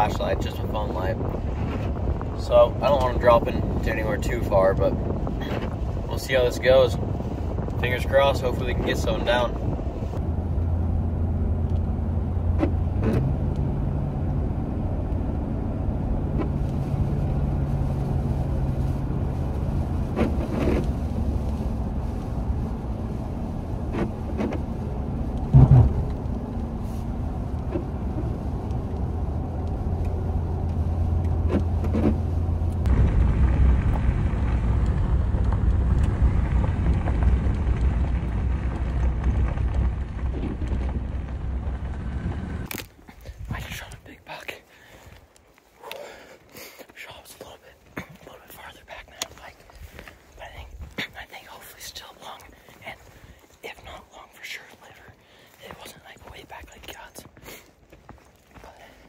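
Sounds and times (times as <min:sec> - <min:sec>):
rough loud rumble: 0:00.0 - 0:45.1
tyre and road noise: 0:00.0 - 0:59.0
truck engine humming: 0:09.5 - 0:42.8
loud thump: 0:25.5 - 0:26.2.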